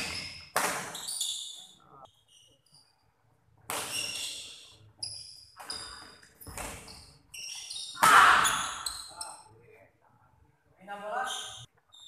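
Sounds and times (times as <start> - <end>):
racket hitting shuttlecock: 0.0 - 1.0.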